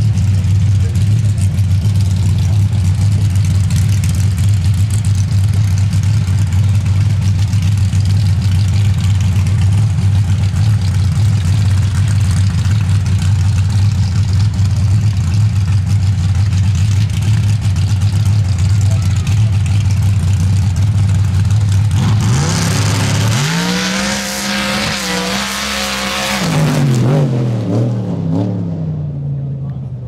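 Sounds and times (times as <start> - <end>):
truck engine idling loudly: 0.0 - 23.6.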